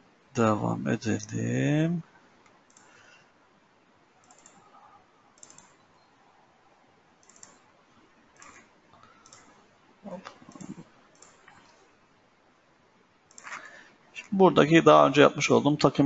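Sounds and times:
faint computer mouse clicks: 2.4 - 3.0, 4.2 - 4.6, 5.4 - 5.8, 7.2 - 7.7, 8.4 - 9.6, 10.2 - 11.8, 13.3 - 13.7.

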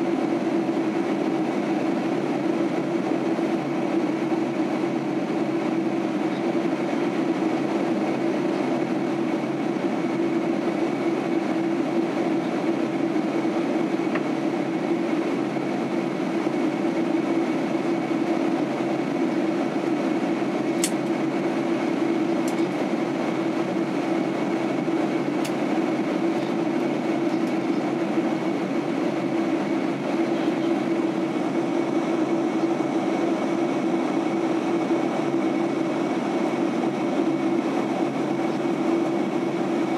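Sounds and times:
airliner cabin drone: 0.0 - 39.9.

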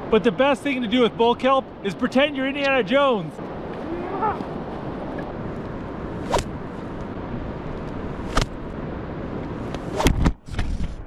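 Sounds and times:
steady background hiss: 0.1 - 9.9
kelp snapping like a whip: 6.2 - 6.6, 8.3 - 8.6.

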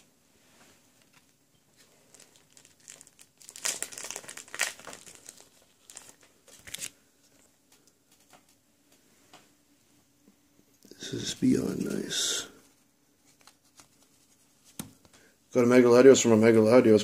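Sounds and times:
plastic wrapper crinkling: 1.0 - 8.6.

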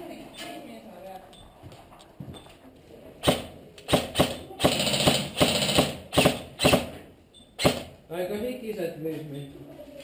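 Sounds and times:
airsoft rifle rapid burst: 3.2 - 6.9, 7.6 - 7.9
airsoft rifle shots: 3.2 - 7.0, 7.6 - 8.0.

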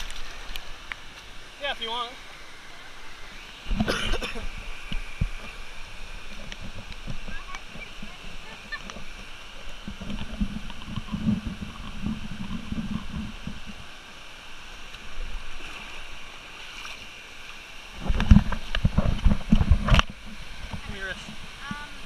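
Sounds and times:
low wind rumble: 0.0 - 16.5
waterfalls rushing into a pool: 0.0 - 22.0.

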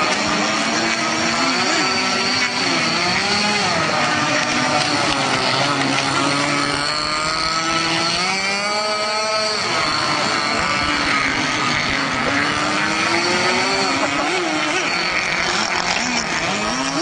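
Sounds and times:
small model engine revving: 0.0 - 17.0.

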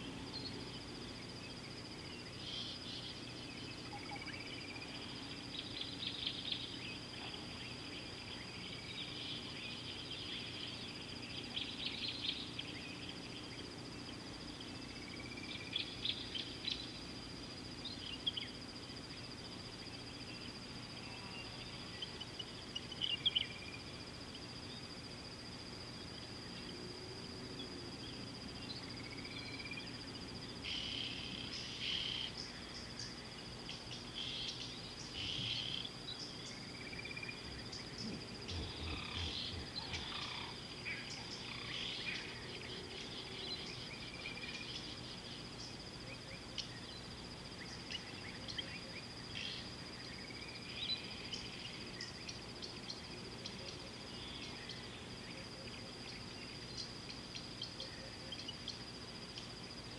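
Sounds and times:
faint low hum: 0.0 - 59.9
high-pitched insect trill: 0.0 - 59.9
bird chirps: 30.7 - 45.0.

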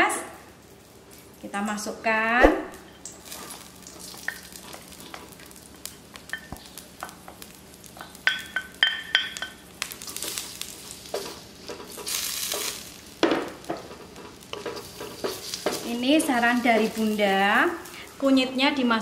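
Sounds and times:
vegetables sizzling in hot oil: 0.0 - 19.0
metal clinks against wok: 8.2 - 9.6.

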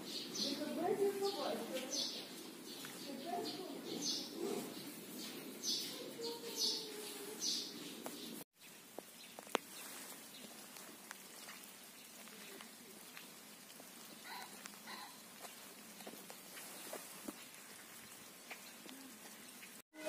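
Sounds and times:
faint outdoor ambience: 0.0 - 20.0
small birds chirping: 0.0 - 20.0
light ticks: 9.4 - 9.7.

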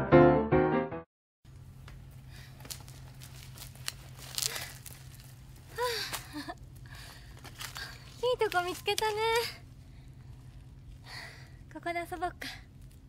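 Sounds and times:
low steady hum: 1.5 - 13.0
bicycle tyres on dry leaves: 1.7 - 11.4
woman's voice: 8.2 - 9.6, 11.7 - 12.7.

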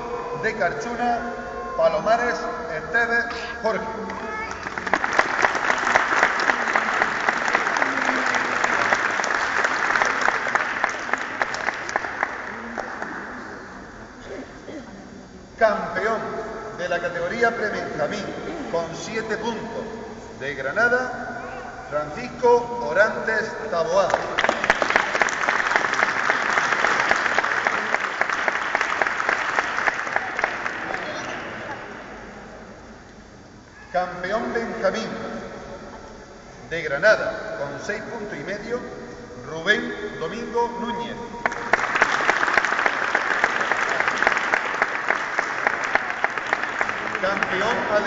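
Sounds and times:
audience applauding: 4.1 - 13.5, 24.0 - 32.0, 41.4 - 48.0.

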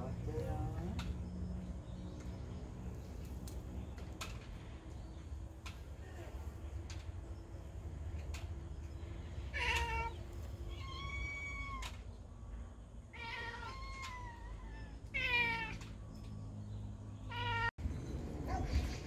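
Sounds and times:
cat meowing: 9.5 - 12.0, 13.1 - 15.9, 17.3 - 17.7.

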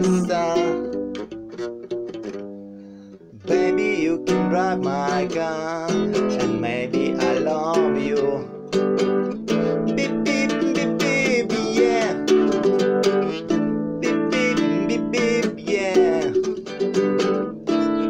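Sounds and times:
man singing: 0.0 - 1.2, 3.3 - 8.6, 9.5 - 13.2, 14.0 - 18.0
classical guitar strumming: 0.0 - 18.0.

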